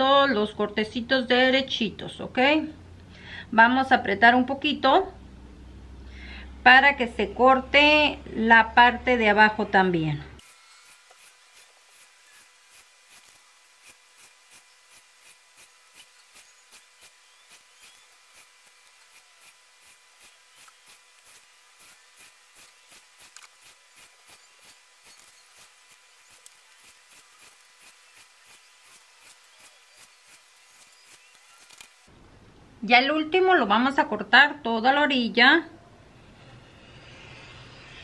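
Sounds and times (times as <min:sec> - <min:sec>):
craft knife scratching through card: 0:10.4 - 0:32.1.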